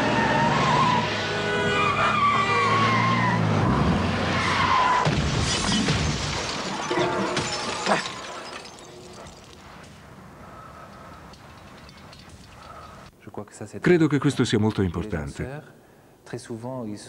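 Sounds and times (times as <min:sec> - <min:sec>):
car crash: 0:03.8 - 0:10.1.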